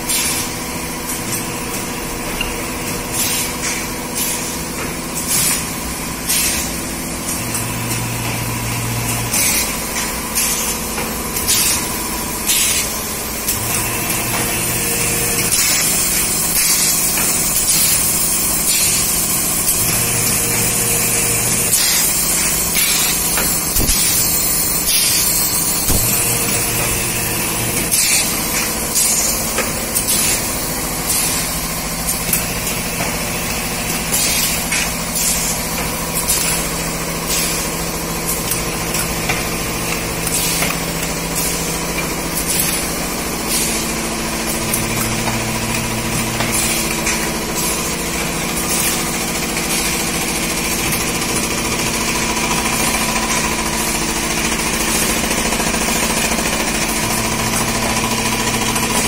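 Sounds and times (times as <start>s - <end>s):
machine mechanism clacking: 0.0s - 59.0s
machine motors humming: 0.0s - 59.0s.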